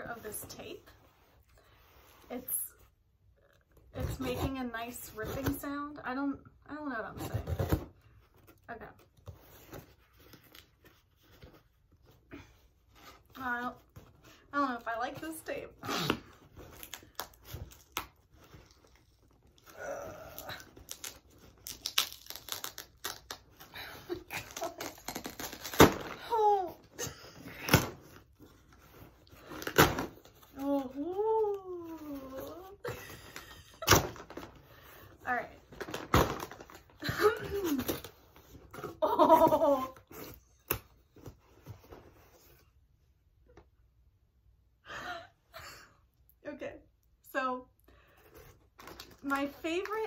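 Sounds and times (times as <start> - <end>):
tape ripping: 15.9 - 26.4
person giggling: 39.0 - 40.0.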